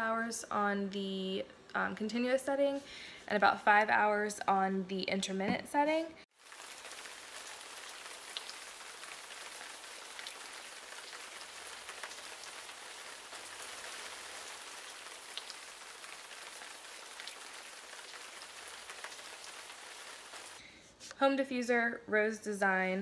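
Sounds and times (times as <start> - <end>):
diffuser watery hiss: 6.3 - 21.2.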